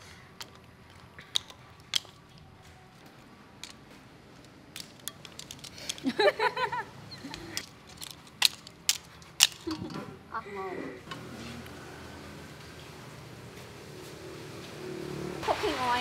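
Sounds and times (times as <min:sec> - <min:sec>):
clam shells clicking: 0:00.4 - 0:02.5, 0:04.4 - 0:06.3, 0:07.2 - 0:09.8.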